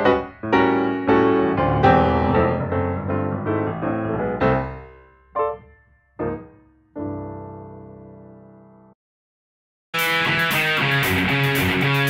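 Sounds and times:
piano music: 0.0s - 9.0s.

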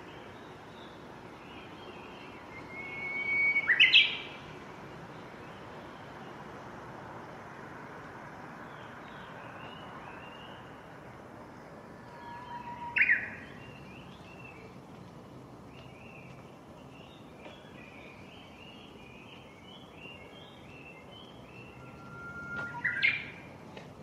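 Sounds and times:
bush warbler singing: 0.0s - 6.7s, 8.4s - 23.7s
faint bird calls: 15.7s - 23.5s.

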